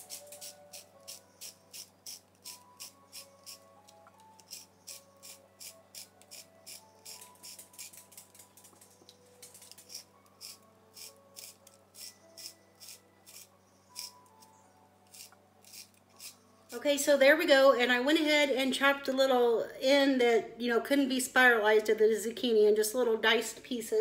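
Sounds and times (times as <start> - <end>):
faint background music: 0.0 - 24.0
spiralizer scraping zucchini: 4.4 - 8.4, 9.7 - 14.1.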